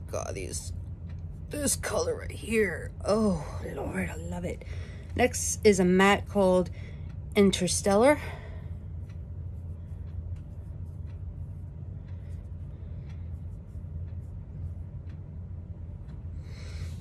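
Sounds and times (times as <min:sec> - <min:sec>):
steady low hum: 0:00.0 - 0:17.0.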